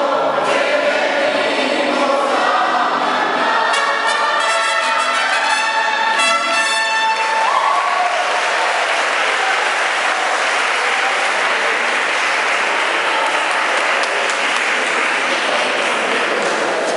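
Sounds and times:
held trumpet note: 0:04.0 - 0:07.5
congregation applauding: 0:05.5 - 0:16.9.

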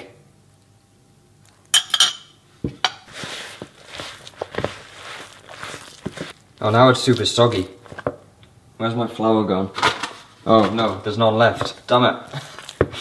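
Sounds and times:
fork scraping sticky dough: 0:03.0 - 0:06.4.

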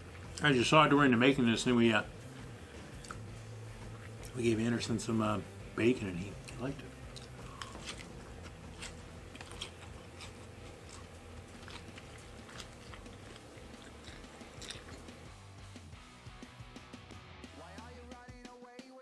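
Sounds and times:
faint low hum: 0:00.0 - 0:15.7
man chewing crunchy food: 0:02.2 - 0:04.4, 0:06.4 - 0:15.7.

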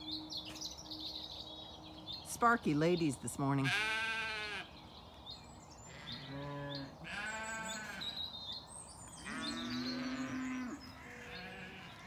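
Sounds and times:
sheep bleating: 0:03.6 - 0:04.7, 0:05.9 - 0:08.2, 0:09.2 - 0:12.0.

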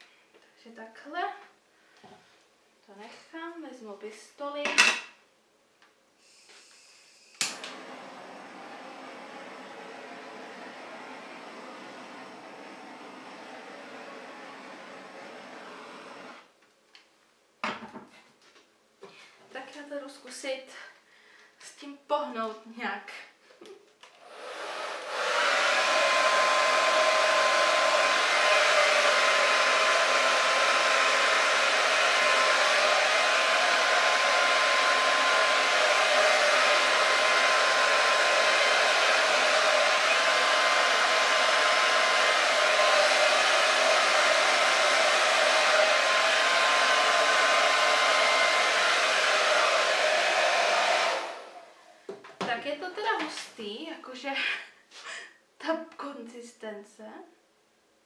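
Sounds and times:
hair dryer running: 0:07.2 - 0:16.5, 0:24.2 - 0:51.8.

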